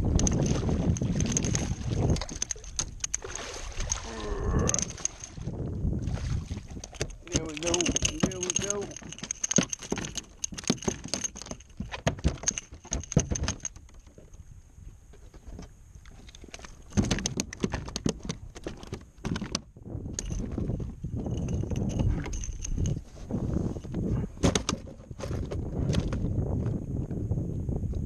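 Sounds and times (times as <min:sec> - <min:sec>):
clicks and knocks on plastic kayak: 0:06.7 - 0:14.3, 0:15.1 - 0:20.7, 0:23.8 - 0:26.8.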